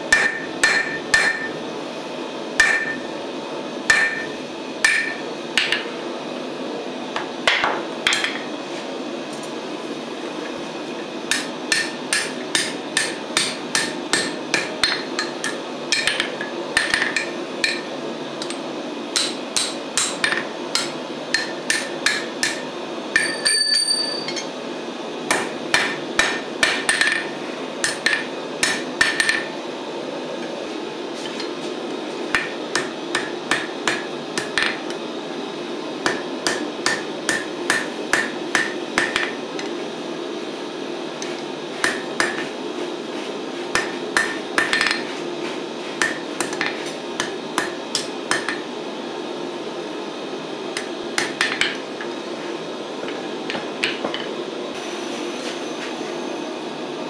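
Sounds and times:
steady low hum: 0.0 - 57.0
hammer blows on anvil: 0.1 - 1.6, 2.6 - 3.1, 3.9 - 5.9.

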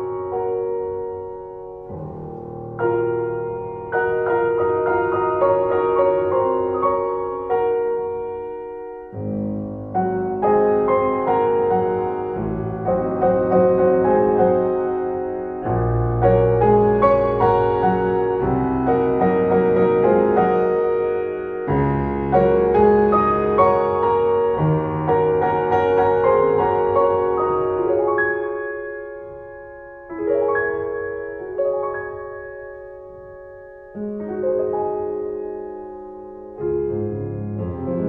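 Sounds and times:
piano music: 0.0 - 38.0.

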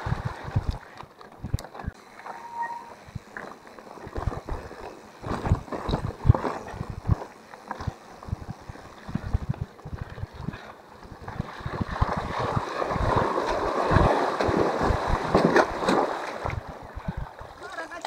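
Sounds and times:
wind buffeting microphone: 0.0 - 2.0, 4.0 - 18.0.

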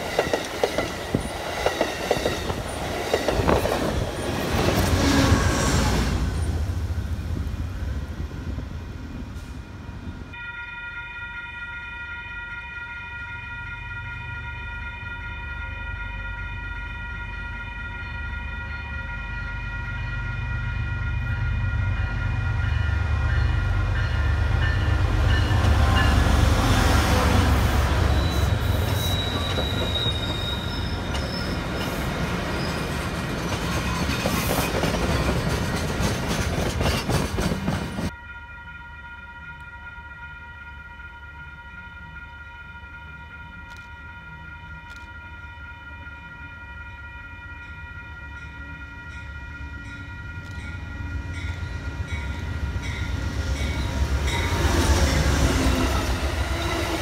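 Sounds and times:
train rumble: 0.0 - 10.4, 13.6 - 38.2, 47.7 - 57.0
wheels clicking over rail joints: 32.6 - 38.1.

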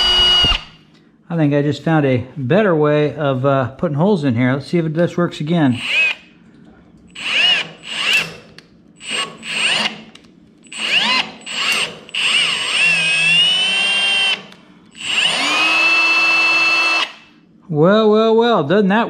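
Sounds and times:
power drill motor whine: 0.0 - 0.8, 5.8 - 6.2, 7.1 - 8.4, 9.0 - 17.3.

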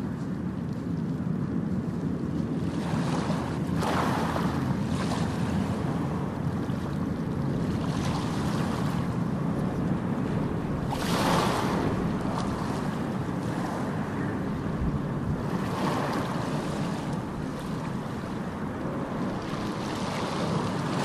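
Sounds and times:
waves breaking on beach: 0.0 - 21.0.

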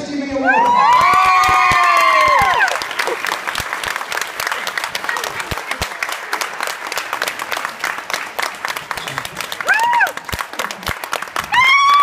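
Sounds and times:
high-pitched cheers and screams: 0.3 - 2.8, 9.6 - 10.2, 11.5 - 12.0
crowd applauding: 0.5 - 12.0.

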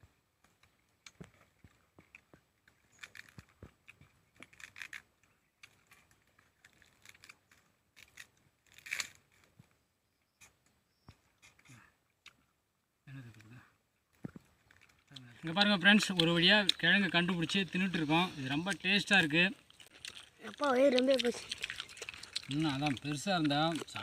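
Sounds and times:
fibrous tuber tearing: 2.9 - 9.5, 14.3 - 24.0.

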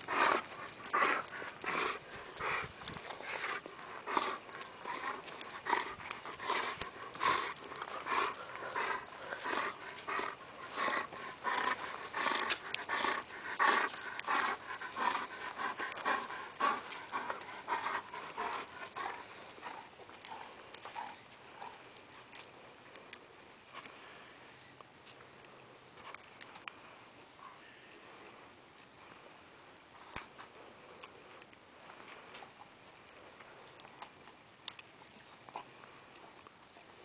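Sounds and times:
dog panting: 0.0 - 22.4.

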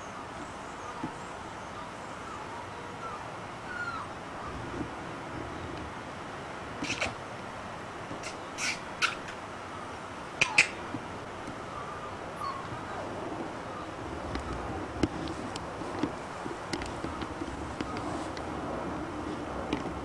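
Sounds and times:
puppies whining: 0.8 - 5.9, 6.8 - 7.2, 8.2 - 9.4, 10.4 - 10.9, 11.5 - 15.6
puppies squeaking: 1.6 - 4.6, 6.8 - 7.2, 8.2 - 9.4, 10.4 - 10.9, 11.5 - 14.8.

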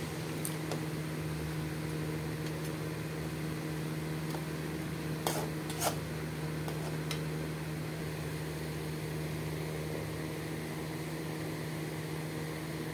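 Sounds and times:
low mechanical hum: 0.0 - 12.9.

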